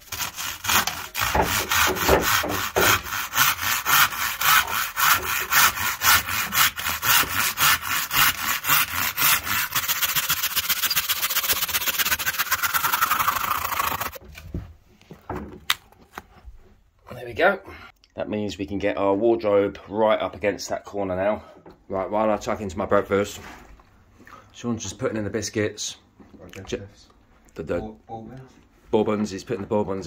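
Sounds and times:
handsaw cutting wood: 0:00.0 - 0:14.2.

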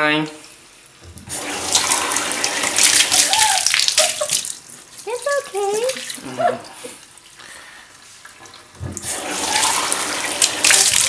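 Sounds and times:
water splashing into bathtub: 0:01.0 - 0:11.0.

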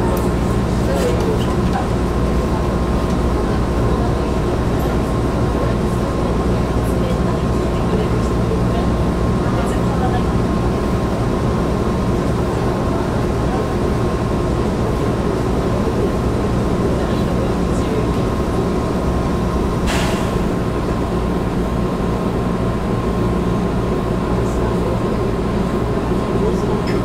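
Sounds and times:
electric train equipment hum: 0:00.0 - 0:27.0
air release hiss: 0:19.9 - 0:20.4.

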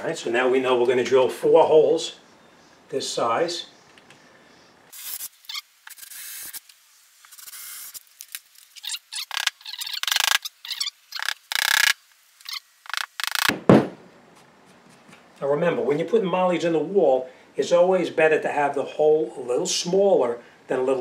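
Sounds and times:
knock: 0:13.5 - 0:14.0.

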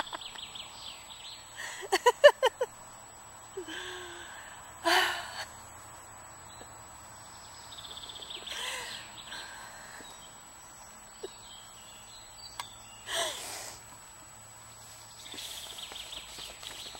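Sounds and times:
small birds trilling: 0:06.3 - 0:13.8, 0:14.8 - 0:16.9
woman laughing gasps: 0:08.5 - 0:09.6, 0:13.1 - 0:13.6.

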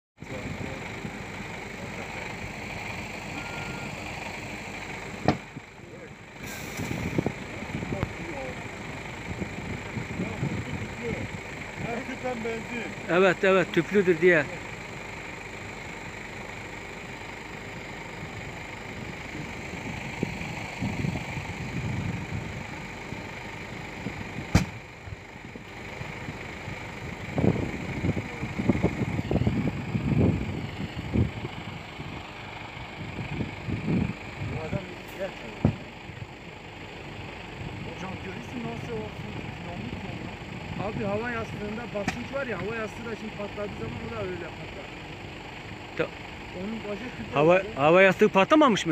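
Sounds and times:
fire rushing and crackling: 0:00.2 - 0:43.0
loud bang from burning car: 0:24.5 - 0:24.8.

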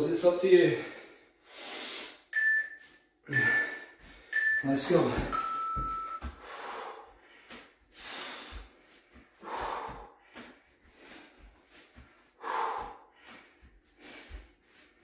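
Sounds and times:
man breathing hard: 0:00.7 - 0:02.3, 0:03.3 - 0:05.3, 0:06.2 - 0:15.0.

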